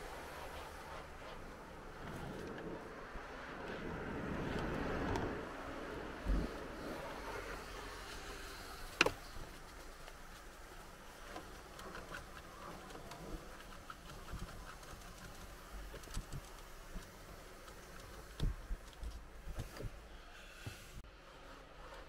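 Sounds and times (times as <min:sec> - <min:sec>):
brush scrubbing plastic: 0:06.5 - 0:19.6.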